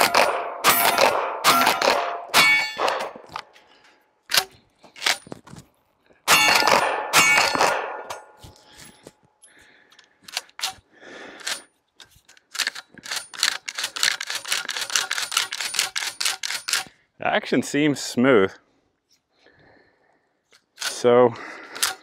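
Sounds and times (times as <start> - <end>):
shotgun slide metallic clacks: 0.0 - 3.7, 11.4 - 16.9.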